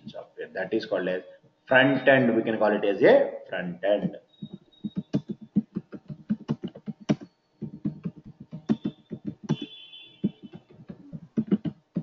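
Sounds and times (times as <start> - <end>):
typing on keyboard: 4.4 - 12.0.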